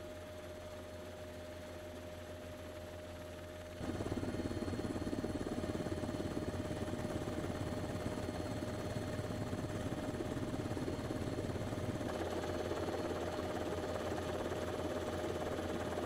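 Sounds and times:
aircraft engine drone: 0:03.0 - 0:16.0.

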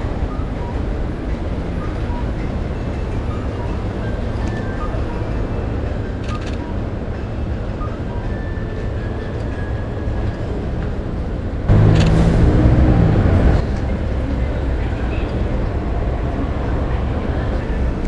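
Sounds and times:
low rumble of traffic: 0:00.0 - 0:18.0
low-pitched engine-like sound: 0:11.5 - 0:18.0.

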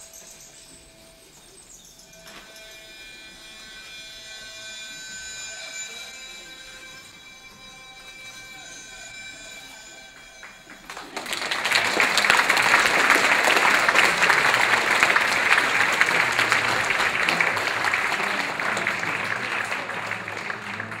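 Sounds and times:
audience applauding: 0:10.2 - 0:21.0.

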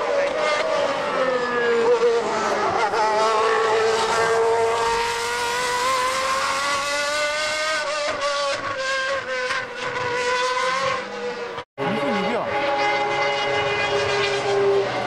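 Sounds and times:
racing car engine at high revs: 0:00.0 - 0:15.0.

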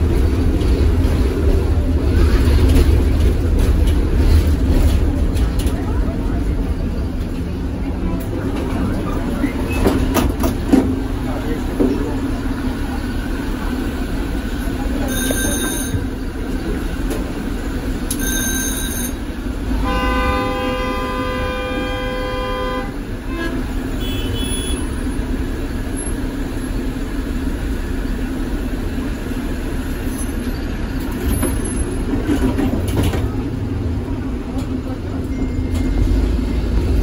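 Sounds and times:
tram rumbling: 0:00.0 - 0:37.0
tram horn: 0:18.2 - 0:25.0.

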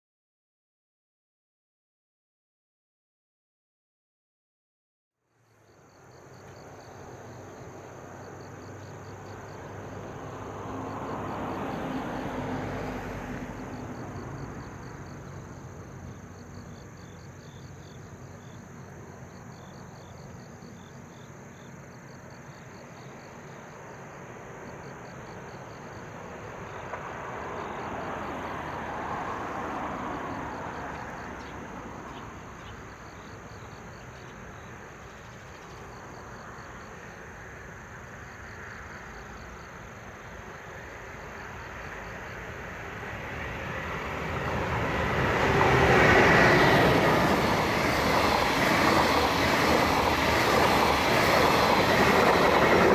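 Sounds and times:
insects trilling: 0:05.3 - 0:52.9.

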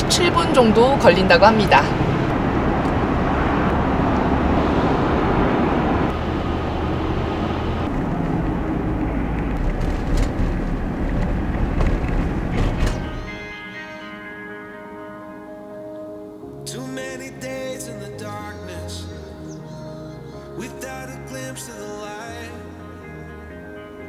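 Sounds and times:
car cabin road noise: 0:00.0 - 0:13.5.

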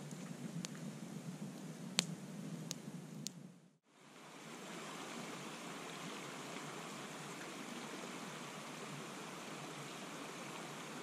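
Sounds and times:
flowing river rushing: 0:03.9 - 0:11.0.

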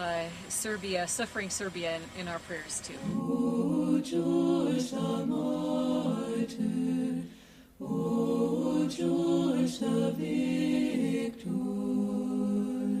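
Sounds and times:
choir singing a church chant: 0:03.0 - 0:13.0.

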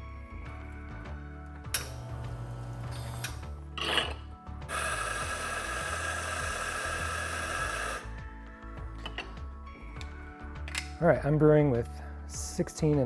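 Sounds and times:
coffee grinder grinding: 0:01.9 - 0:08.1.

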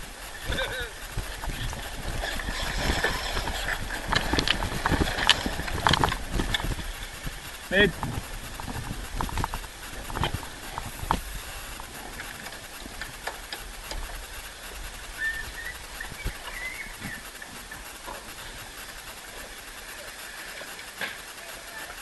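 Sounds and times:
wind rushing: 0:00.0 - 0:12.8
water rushing at a bow: 0:00.0 - 0:22.0
wavering squeak: 0:15.1 - 0:17.4.

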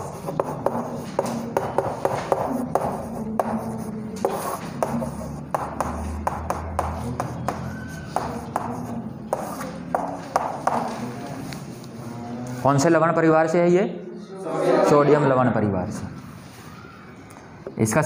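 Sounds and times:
chalk tapping on chalkboard: 0:00.0 - 0:11.2
chalk scratching on chalkboard: 0:00.0 - 0:11.7.

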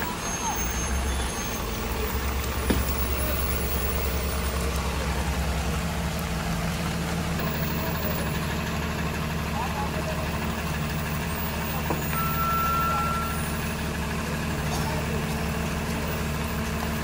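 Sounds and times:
rain hissing: 0:00.0 - 0:08.2
lorry diesel engine idling: 0:00.0 - 0:17.0.

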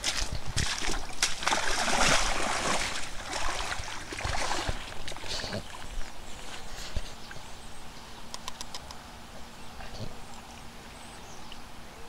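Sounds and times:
water splashing and sloshing: 0:00.0 - 0:07.6.

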